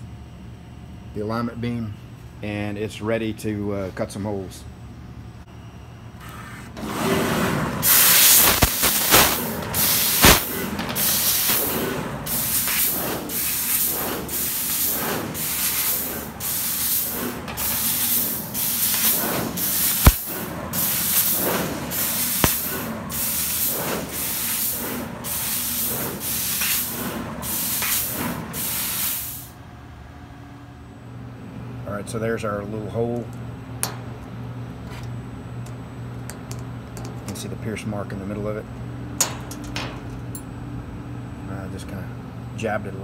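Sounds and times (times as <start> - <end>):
laser cutter gas hissing: 7.0 - 29.6
sharp snaps: 8.4 - 9.4, 22.4 - 22.7.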